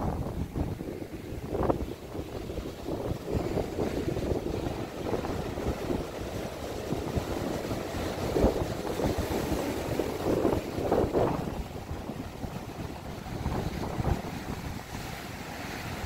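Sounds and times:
surf breaking on beach: 0.0 - 16.0
wind buffeting microphone: 0.0 - 16.0.

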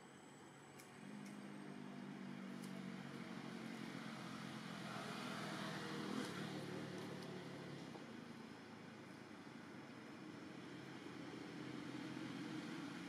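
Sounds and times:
motor vehicle engine hum passing: 0.1 - 13.0.

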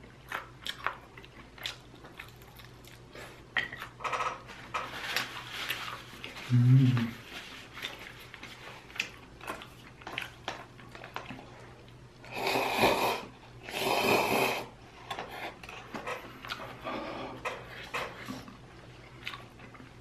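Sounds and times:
person slurping noodles: 12.3 - 14.7.

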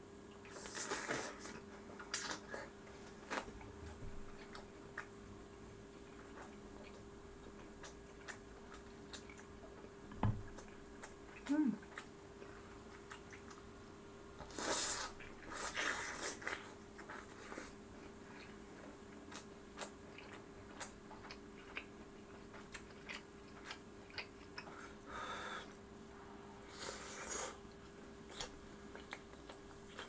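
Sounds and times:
faint electrical hum: 0.0 - 30.0
chewing and biting food: 5.9 - 13.7, 14.5 - 25.0, 28.2 - 30.0.

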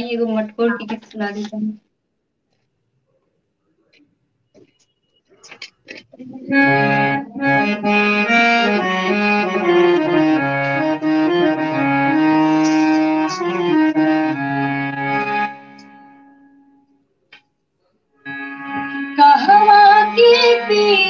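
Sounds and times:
harmonium folk melody: 6.4 - 16.9, 18.2 - 21.0.

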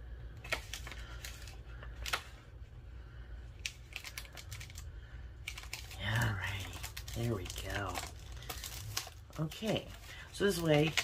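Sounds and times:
low steady hum: 0.0 - 11.0
paper and card clicks and taps: 0.4 - 2.4.

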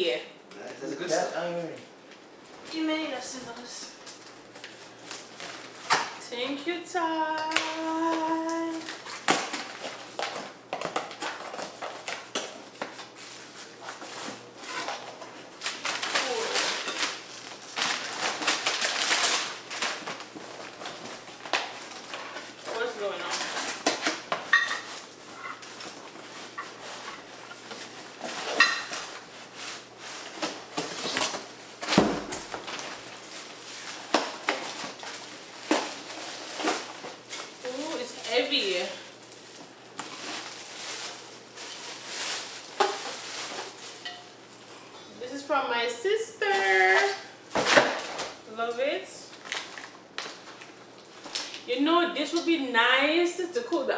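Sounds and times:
packing rustling: 13.0 - 44.1.

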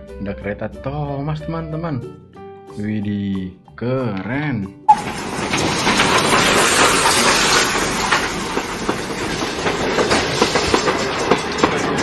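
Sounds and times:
train rushing past: 4.9 - 12.0
wheels clicking over rail joints: 4.9 - 12.0.

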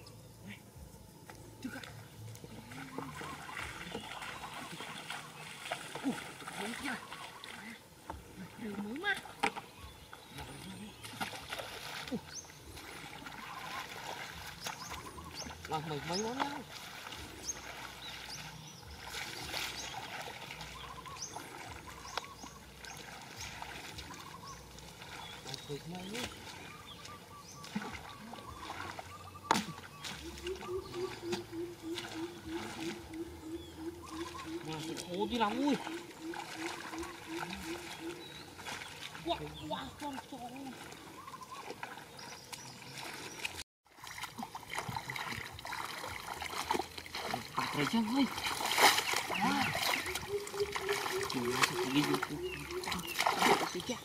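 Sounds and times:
hands sloshing in muddy water: 1.6 - 54.0
high bird chirps: 26.1 - 39.8.

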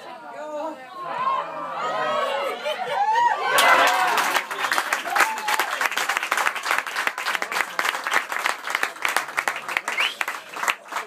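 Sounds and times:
crowd clapping: 3.5 - 11.0.

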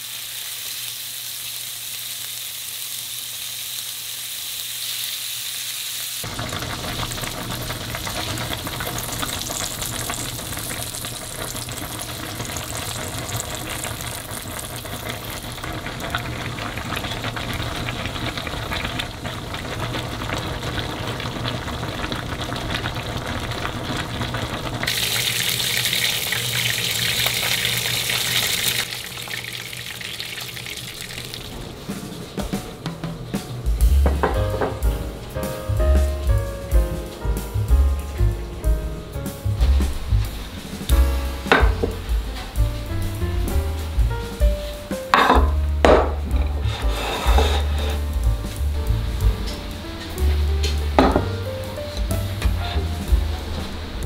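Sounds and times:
beef sizzling in a pan: 0.0 - 32.1, 39.4 - 54.0
dense cooking noise: 0.0 - 54.0
sharp hiss: 33.3 - 45.2, 46.6 - 54.0.

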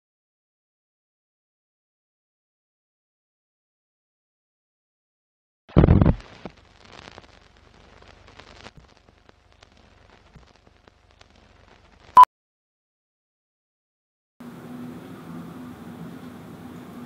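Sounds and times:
old film crackle and ticks: 6.2 - 12.2.

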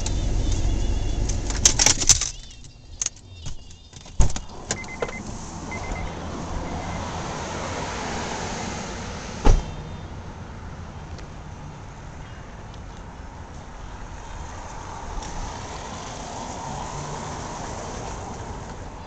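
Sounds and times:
keys and car door clicks: 0.0 - 5.2
car engine rumble: 0.0 - 19.0
outdoor noise: 0.0 - 19.0
car door shutting: 3.4 - 6.1, 9.3 - 10.0
electronic chime beeps: 4.8 - 7.0.

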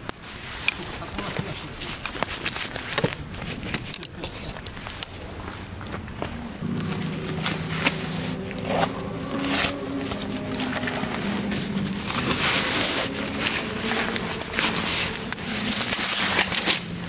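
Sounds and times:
fabric sack rustling on gravel: 5.2 - 17.0.

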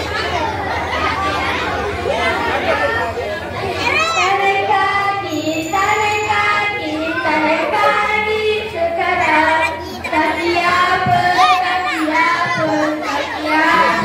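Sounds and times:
children singing in unison: 3.8 - 14.0.

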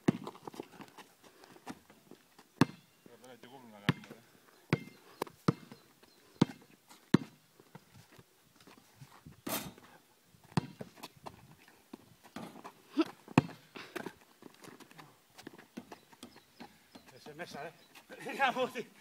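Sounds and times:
basketball bouncing: 0.0 - 0.4, 2.6 - 2.8, 3.9 - 5.8, 10.5 - 10.9, 13.3 - 13.6.

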